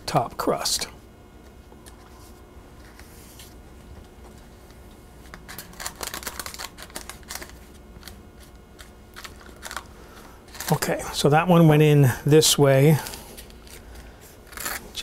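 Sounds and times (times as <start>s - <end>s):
pastry dough crackling and rustling: 1.7s - 11.7s.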